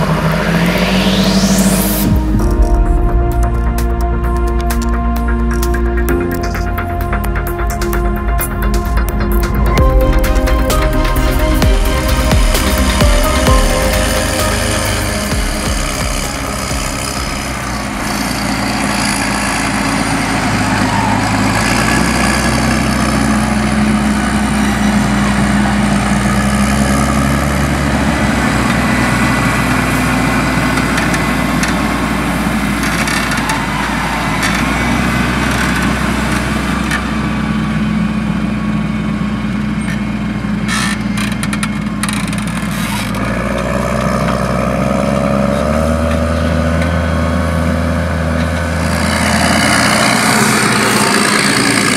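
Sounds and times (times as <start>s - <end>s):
tractor diesel engine running: 0.0s - 51.9s.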